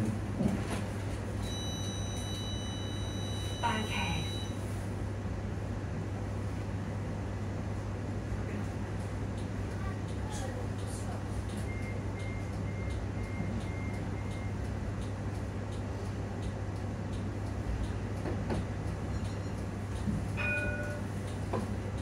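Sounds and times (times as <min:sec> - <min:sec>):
tram interior hum with rattles: 0:00.0 - 0:22.0
short high beeps: 0:01.4 - 0:04.6
chime-like tone: 0:20.4 - 0:21.0.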